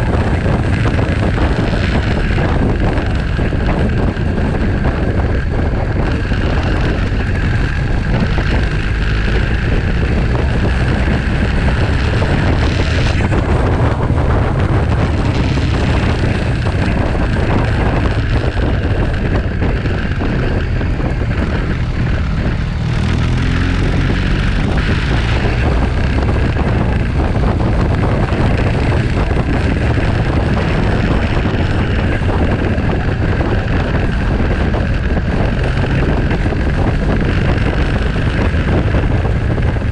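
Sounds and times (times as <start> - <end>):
motorcycle engine running: 0.0 - 39.9
wind buffeting microphone: 0.0 - 39.9.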